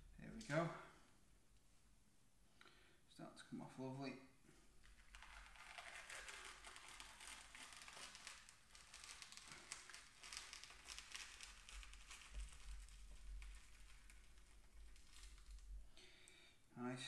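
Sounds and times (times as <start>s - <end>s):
fish skin crackling and tearing: 4.8s - 15.8s.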